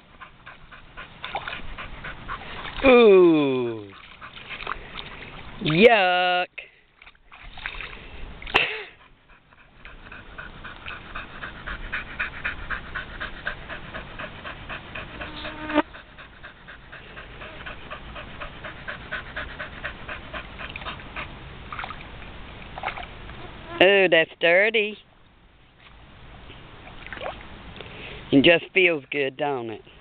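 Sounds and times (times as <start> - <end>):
dog panting fast: 0.0 - 2.8, 8.9 - 21.3.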